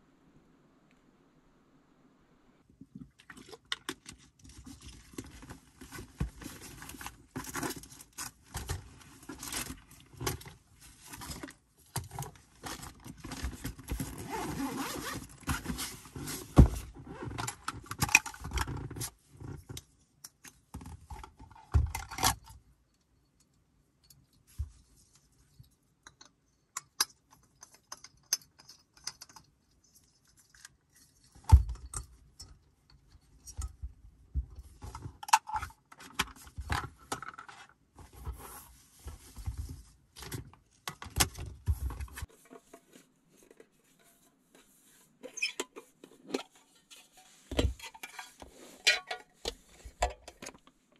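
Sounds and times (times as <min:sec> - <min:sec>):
rustling: 0:41.6 - 0:50.0.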